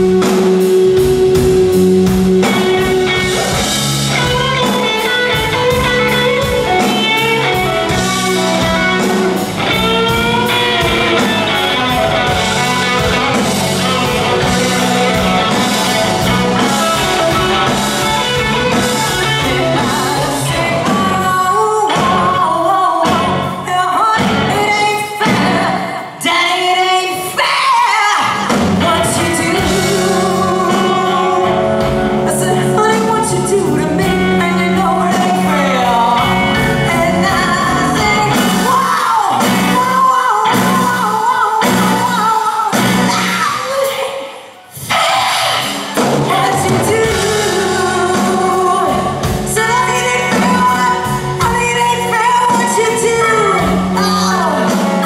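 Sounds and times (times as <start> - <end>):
bass guitar: 0.0 - 25.9, 28.4 - 44.0, 44.8 - 55.0
electric guitar: 0.0 - 26.4, 28.2 - 55.0
woman singing blues: 2.4 - 44.7, 46.2 - 55.0
drum strokes: 44.8 - 48.5.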